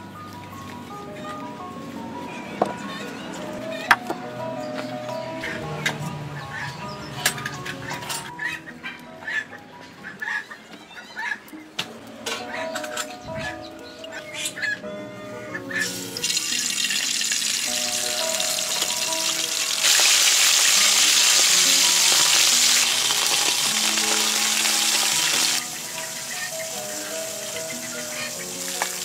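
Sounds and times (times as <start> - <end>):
background music: 0.0 - 29.0
food sizzling in wok: 15.8 - 29.0.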